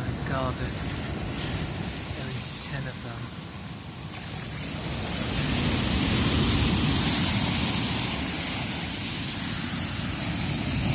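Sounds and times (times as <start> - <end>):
seawater rushing through rocks: 4.0 - 10.9.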